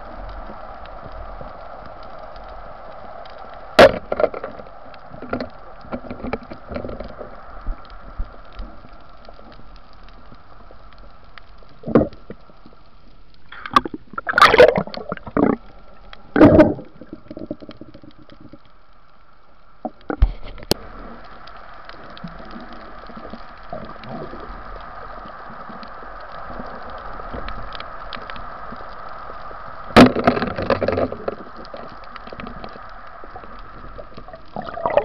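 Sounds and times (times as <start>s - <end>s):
speargun shot crack underwater: 3.8s - 4.3s, 13.7s - 15.6s.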